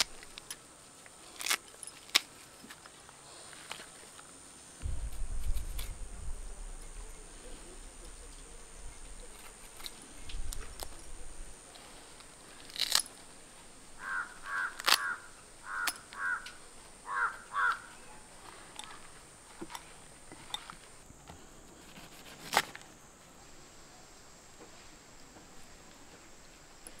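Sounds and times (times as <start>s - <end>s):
crow cawing: 14.0s - 18.0s.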